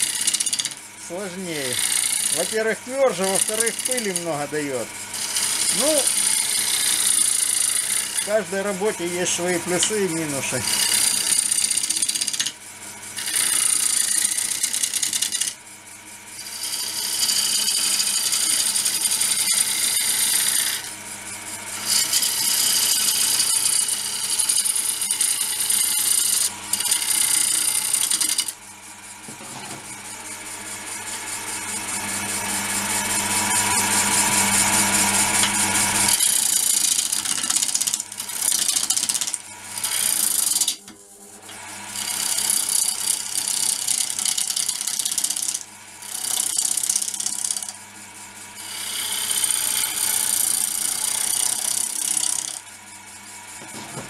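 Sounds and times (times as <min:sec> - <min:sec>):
lathe cutter shearing wood: 0:00.0 - 0:28.6, 0:29.2 - 0:54.0
wood lathe humming: 0:00.0 - 0:54.0.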